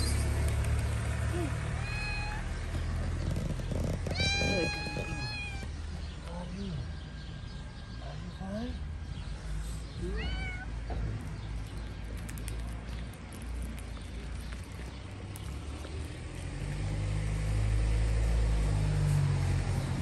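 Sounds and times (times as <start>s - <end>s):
cat meowing: 1.8s - 2.5s, 4.0s - 5.7s, 10.1s - 10.8s.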